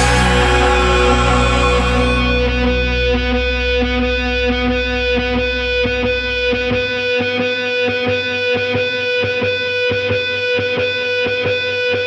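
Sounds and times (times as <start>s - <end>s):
distorted electric guitar chord: 0.0s - 8.5s.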